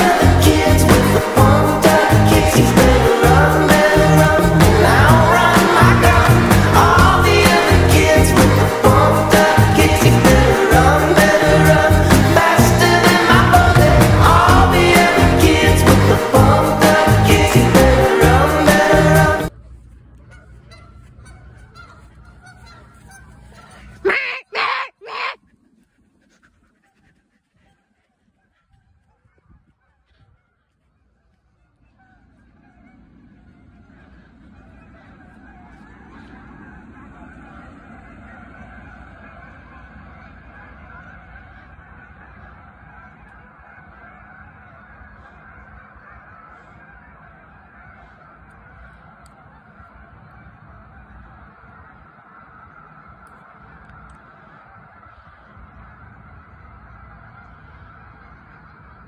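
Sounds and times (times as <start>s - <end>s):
geese honking: 0.0s - 59.0s
low rumble: 0.2s - 20.1s.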